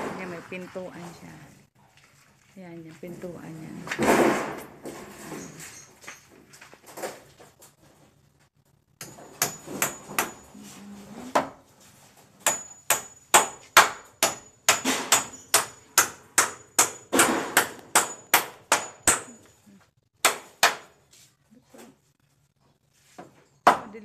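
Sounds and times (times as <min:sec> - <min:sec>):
hammer driving nails into timber: 0:12.4 - 0:19.5.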